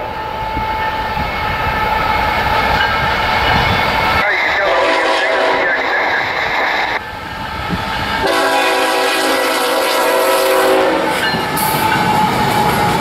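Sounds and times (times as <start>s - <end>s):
passing train rumble: 0.0s - 13.0s
locomotive air horn: 4.6s - 6.0s, 8.2s - 11.2s.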